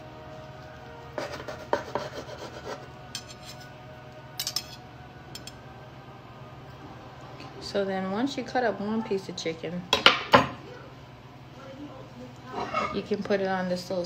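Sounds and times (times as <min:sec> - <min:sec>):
knife sawing through chicken: 0:01.2 - 0:03.7.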